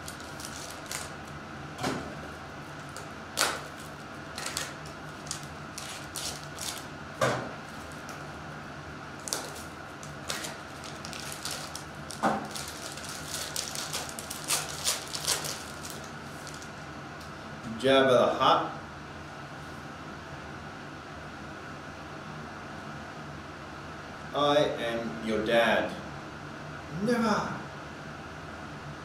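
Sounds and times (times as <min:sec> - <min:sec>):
cards and wrappers crinkling: 0:00.0 - 0:01.4, 0:02.8 - 0:06.9, 0:09.2 - 0:16.7.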